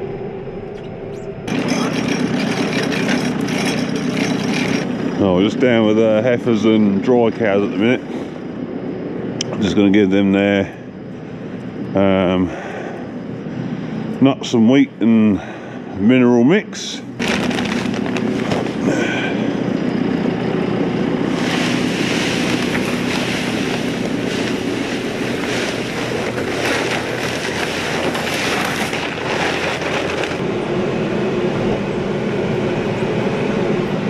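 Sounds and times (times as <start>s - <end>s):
diesel engine running: 0.0s - 34.0s
loud rushing clatter: 17.2s - 19.0s, 21.3s - 30.5s.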